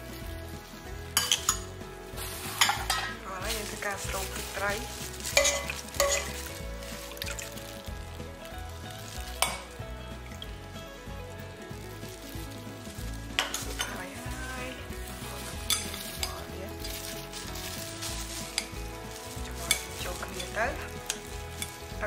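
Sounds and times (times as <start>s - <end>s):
utensils clinking against bowl: 1.2s - 1.7s, 2.6s - 7.5s, 9.4s - 9.7s, 13.4s - 14.4s, 15.5s - 22.0s.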